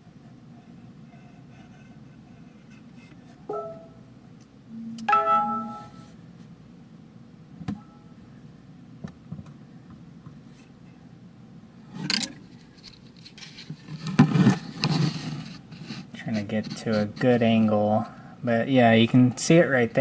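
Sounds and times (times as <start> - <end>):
rubbing and scraping: 0.0 - 3.4, 12.8 - 17.4
short pitched tone: 3.5 - 4.1, 4.7 - 6.1.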